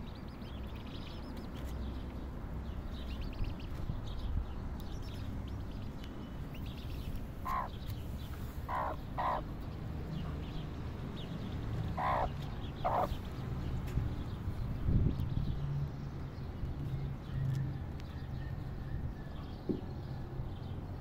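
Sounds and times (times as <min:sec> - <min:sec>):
chicks peeping: 0:00.2 - 0:02.1, 0:02.8 - 0:13.4
harsh bird calls: 0:06.5 - 0:10.6, 0:11.2 - 0:13.4.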